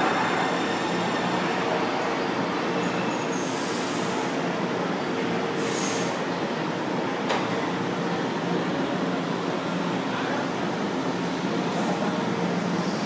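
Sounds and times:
train rumbling into station: 0:00.0 - 0:13.0
short sharp hisses: 0:05.6 - 0:06.2.

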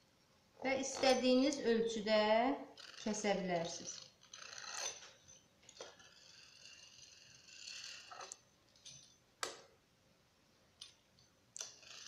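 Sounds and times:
pizza cutter rolling through dough: 0:02.7 - 0:08.4.

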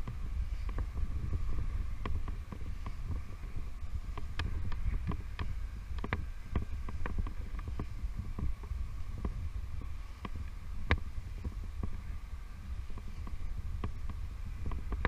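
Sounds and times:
clicks and taps of rope gear: 0:00.0 - 0:01.1, 0:02.0 - 0:09.4, 0:10.2 - 0:12.0
wind rumble on microphone: 0:00.0 - 0:15.0.

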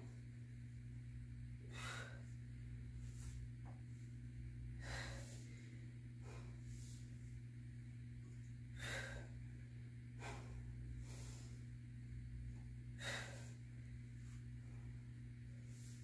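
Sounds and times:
steady low hum: 0:00.0 - 0:16.0
person breathing hard: 0:01.6 - 0:02.4, 0:04.7 - 0:07.3, 0:08.7 - 0:11.9, 0:12.9 - 0:14.9.

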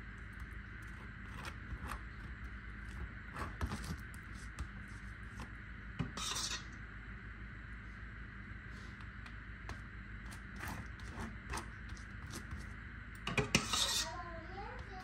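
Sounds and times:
metal spoon clinking and scraping: 0:13.3 - 0:14.1.

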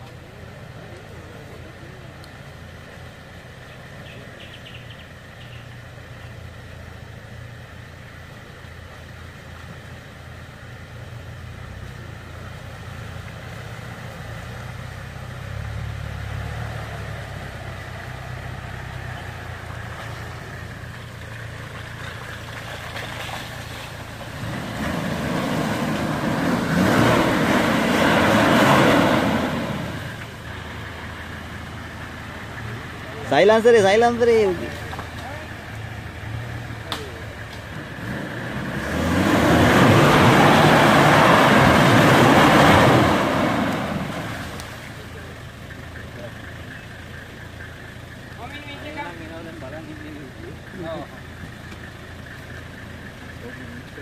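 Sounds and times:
truck engine droning under load: 0:00.0 - 0:54.0
tyres churning through mud: 0:00.0 - 0:54.0.

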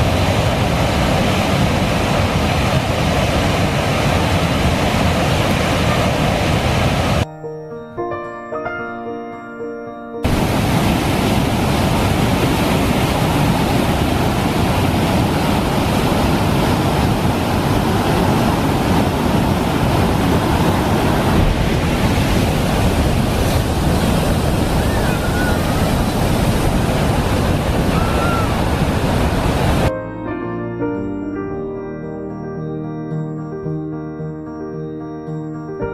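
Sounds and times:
whitewater rushing: 0:00.0 - 0:07.2, 0:10.2 - 0:29.9.

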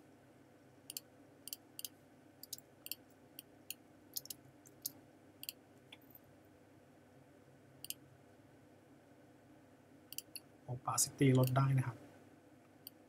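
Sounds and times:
faint steady hum: 0:00.0 - 0:13.0
mouse and keyboard clicking: 0:04.2 - 0:06.0, 0:10.1 - 0:10.4, 0:11.4 - 0:11.6.

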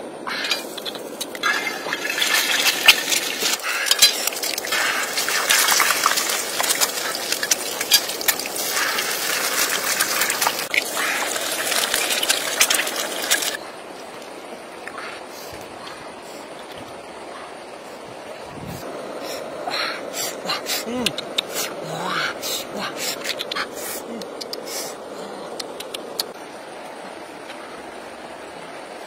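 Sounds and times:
eggs sizzling in hot oil: 0:01.8 - 0:13.6.

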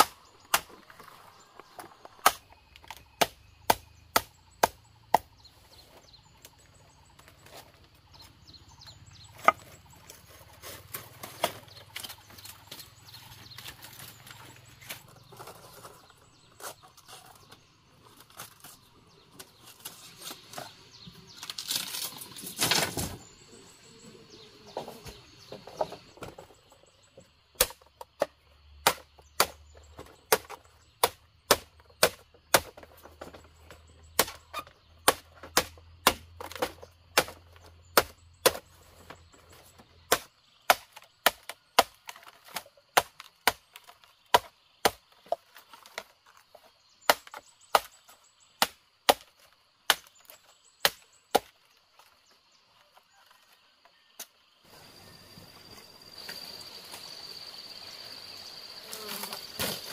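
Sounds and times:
blade chopping bamboo: 0:00.0 - 0:01.1, 0:01.7 - 0:05.4, 0:27.5 - 0:39.1, 0:40.1 - 0:48.0, 0:48.6 - 0:51.6.

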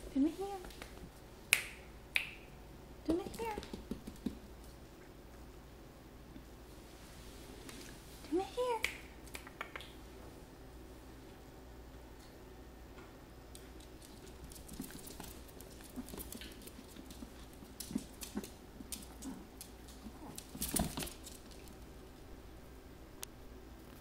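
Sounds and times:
paws pattering on laminate floor: 0:03.2 - 0:04.8, 0:13.6 - 0:21.9
dog scuffle: 0:14.0 - 0:21.8.

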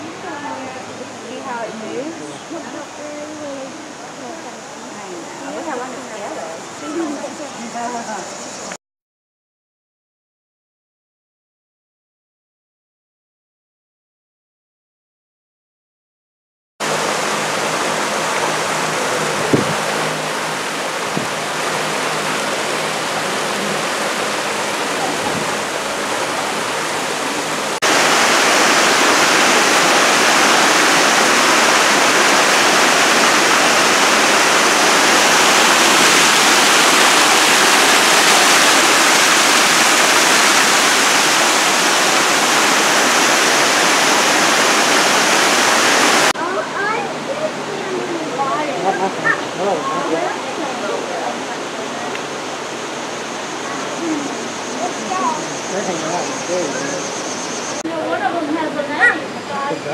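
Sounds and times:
waterfall splashing into a pool: 0:16.8 - 0:47.0.

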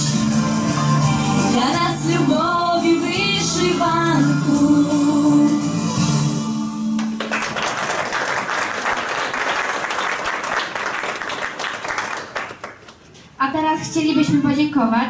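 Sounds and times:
audience applause: 0:07.0 - 0:13.0.

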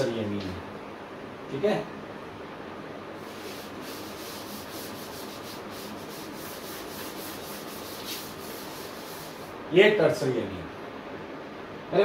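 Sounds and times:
duster scrubbing blackboard: 0:03.2 - 0:09.6.

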